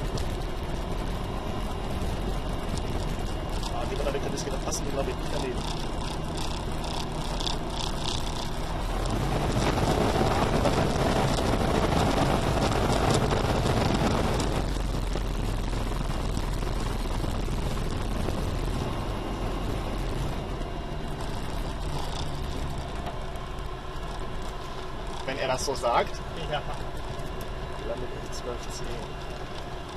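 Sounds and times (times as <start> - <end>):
aircraft engine and propeller droning: 0.0 - 29.9
rush of air noise: 8.6 - 20.4.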